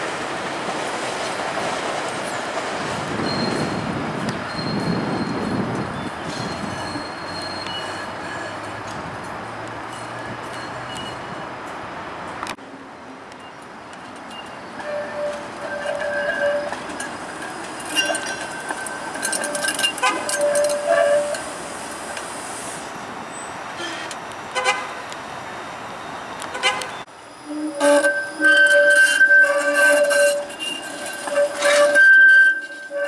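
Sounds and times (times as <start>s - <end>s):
streetcar wheels squealing on rails: 0.0s - 11.8s, 13.4s - 33.0s.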